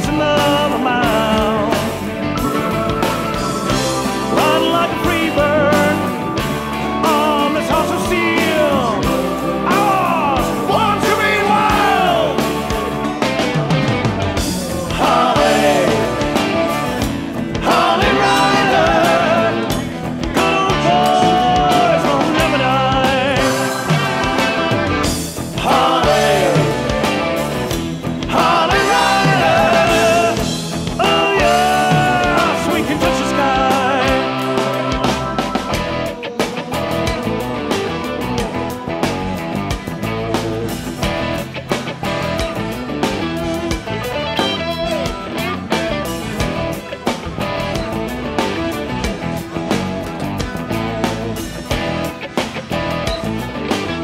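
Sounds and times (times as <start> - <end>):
rock music with drum beat: 0.0 - 54.0.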